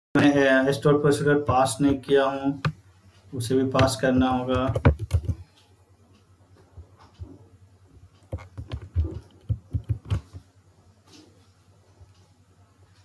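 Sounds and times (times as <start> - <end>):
low electrical hum: 0.2 - 13.0
keyboard keystrokes clicking: 3.8 - 5.4, 8.2 - 10.4.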